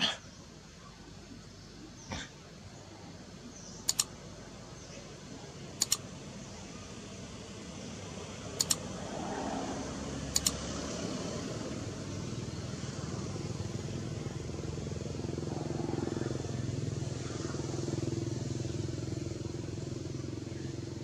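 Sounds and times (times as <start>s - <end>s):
quick double clicks: 3.8s - 4.2s, 5.8s - 6.1s, 8.6s - 8.9s, 10.4s - 10.6s
motorcycle engine running: 7.3s - 21.0s.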